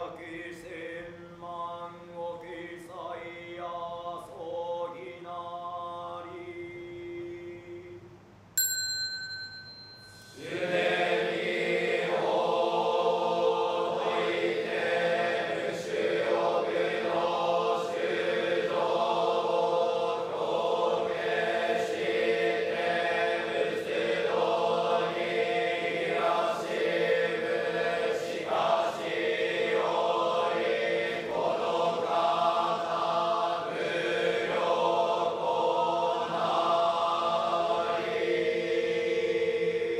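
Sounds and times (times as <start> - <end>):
monks chanting in unison: 0.0 - 8.0, 10.3 - 39.9
small bell ringing: 8.6 - 10.4.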